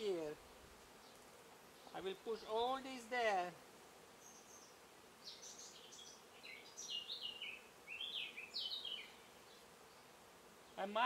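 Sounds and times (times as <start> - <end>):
faint background hiss: 0.0 - 11.0
bird singing: 4.2 - 10.9.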